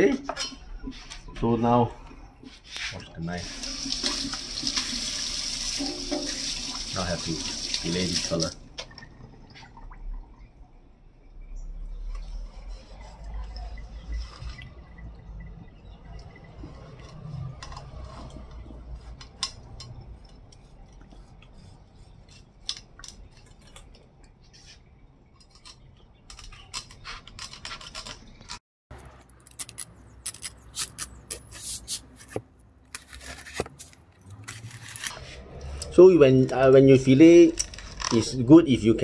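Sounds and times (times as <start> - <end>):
cleaver scraping fish: 12.1 - 14.8, 24.5 - 28.6, 29.4 - 35.9.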